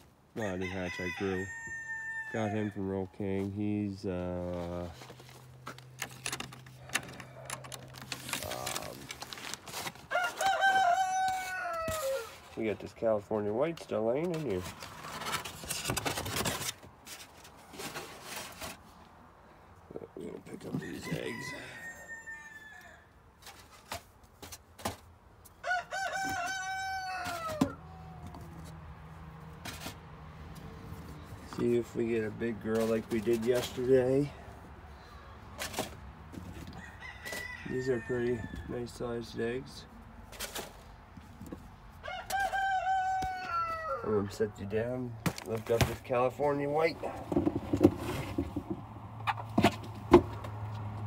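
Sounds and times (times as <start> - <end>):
rooster crowing: 0.4 - 2.7, 10.1 - 12.4, 21.0 - 23.1, 25.6 - 28.4, 36.7 - 38.8, 42.0 - 44.2
rustling: 3.4 - 10.6, 13.8 - 19.2.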